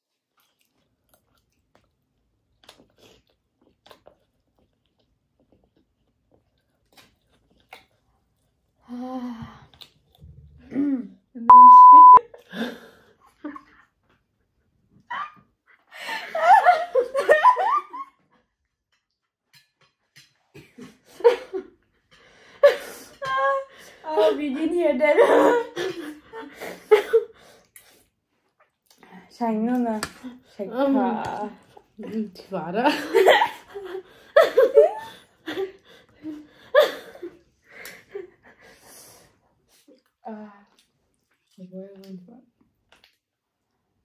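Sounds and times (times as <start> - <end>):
women laughing: 16.0 - 18.1, 32.9 - 38.5.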